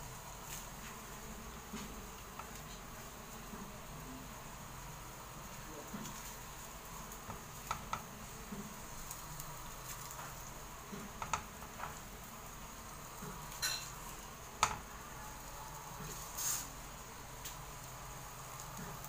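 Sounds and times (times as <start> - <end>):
boiling water hiss: 0.0 - 19.0
clicks and taps of utensils: 7.3 - 8.1, 11.0 - 12.0, 14.6 - 14.8.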